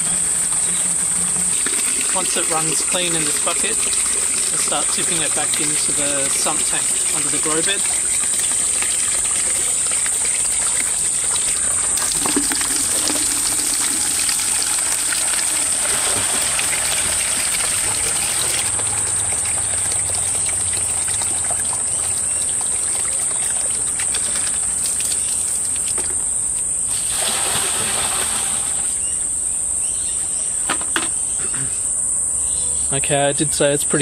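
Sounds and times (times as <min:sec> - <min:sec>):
high-pitched whine: 0:00.0 - 0:08.2
water pouring into plastic bucket: 0:00.0 - 0:26.2, 0:26.9 - 0:29.0.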